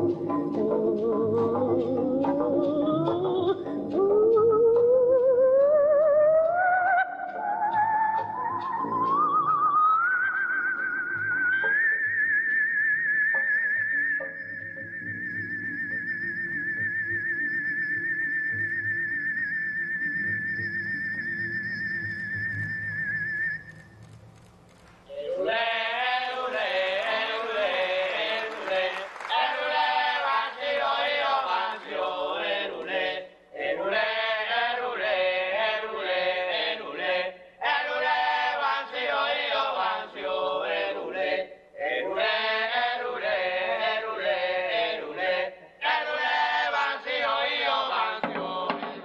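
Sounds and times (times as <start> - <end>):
chant-like singing: 25.1 - 49.0.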